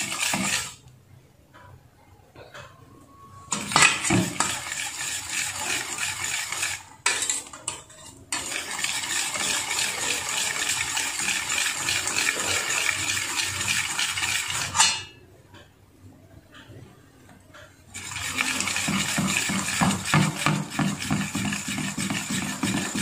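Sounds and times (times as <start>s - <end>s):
whisk clattering in steel bowl: 0.0s - 0.8s, 3.5s - 15.0s, 18.0s - 23.0s.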